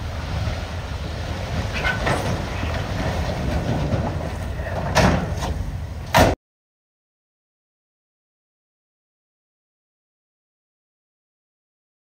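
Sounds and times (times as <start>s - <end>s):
diesel engine running: 0.0s - 6.2s
loud crashes: 0.0s - 6.4s
rocks sliding from steel bed: 0.1s - 5.8s.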